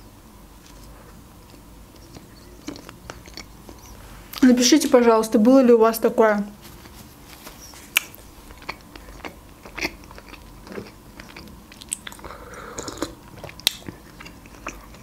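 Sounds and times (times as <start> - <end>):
chewing mouth sounds: 0.6 - 4.4, 7.8 - 15.0.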